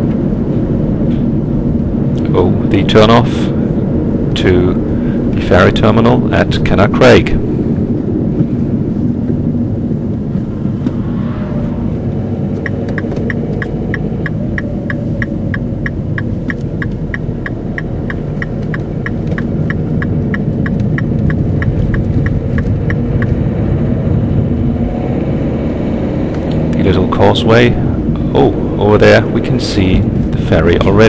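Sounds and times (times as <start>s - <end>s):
car engine rumble: 0.0s - 31.0s
road noise: 0.0s - 31.0s
turn signal ticking: 12.5s - 23.5s.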